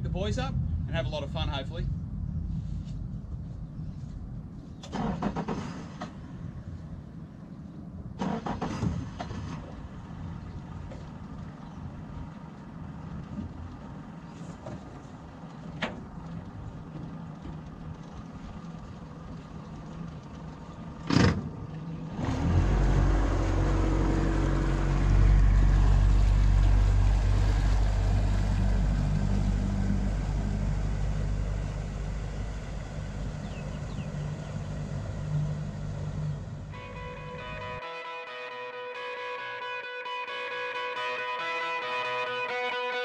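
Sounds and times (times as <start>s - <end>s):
outboard motor: 8.8s - 37.9s
music: 36.8s - 43.0s.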